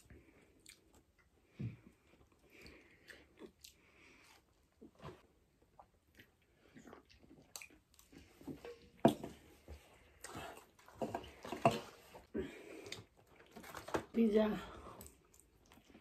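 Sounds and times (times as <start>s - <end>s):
chewing and mouth sounds: 0.0s - 4.7s, 5.6s - 8.8s, 15.0s - 16.0s.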